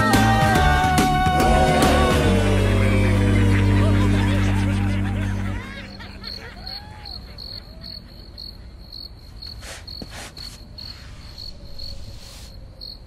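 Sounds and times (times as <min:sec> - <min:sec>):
crickets chirping: 0:05.6 - 0:13.0.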